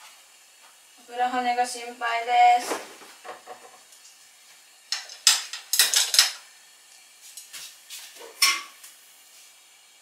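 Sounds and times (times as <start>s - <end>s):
utensils and dishes clattering: 4.9s - 6.4s, 8.2s - 8.8s.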